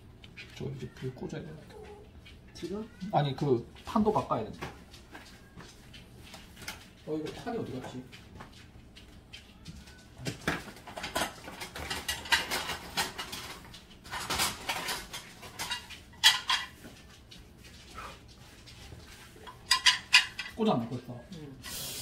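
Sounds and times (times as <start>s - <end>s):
cookware and dishes clattering: 9.6s - 17.2s, 19.0s - 21.1s.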